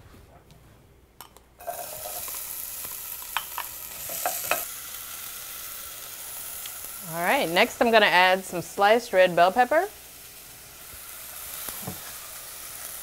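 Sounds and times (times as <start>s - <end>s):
onion sizzling in oil: 1.6s - 13.0s.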